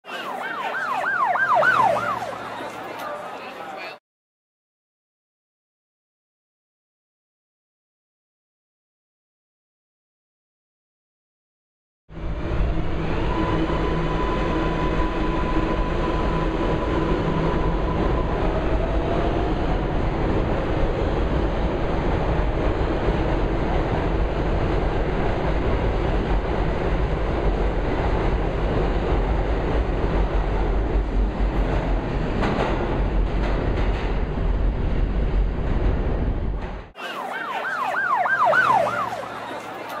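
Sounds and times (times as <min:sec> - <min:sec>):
warbling siren-like tone: 0:00.1 - 0:02.7, 0:12.5 - 0:19.6, 0:37.0 - 0:39.8
subway train rumbling past: 0:12.1 - 0:37.2.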